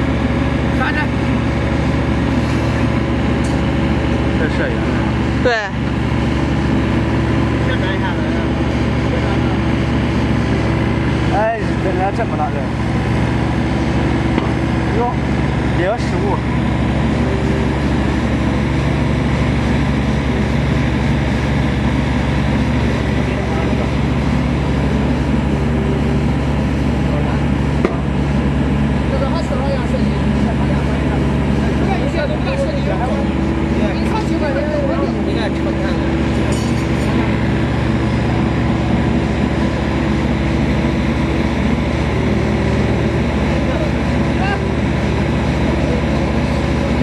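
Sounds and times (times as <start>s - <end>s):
excavator engine running: 0.0s - 47.0s.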